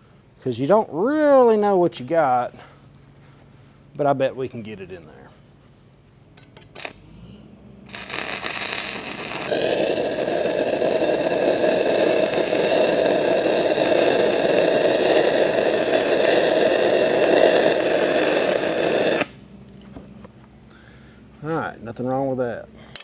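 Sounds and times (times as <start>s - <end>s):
welding arc crackling hiss: 6.8s - 7.0s, 7.9s - 19.4s.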